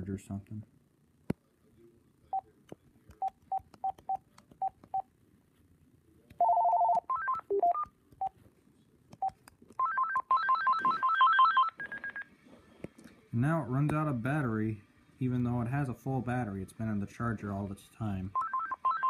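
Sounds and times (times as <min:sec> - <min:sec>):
chirping ringtone melody: 0:18.4 - 0:19.0.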